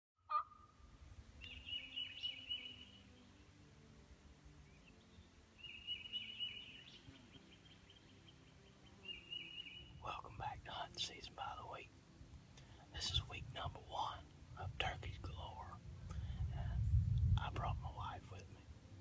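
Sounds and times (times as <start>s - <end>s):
steady high hiss: 0.6s - 19.0s.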